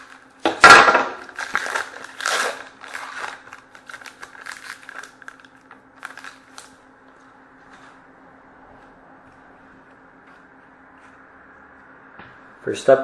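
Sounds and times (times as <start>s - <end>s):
wrapper crinkling: 0.0s - 6.8s.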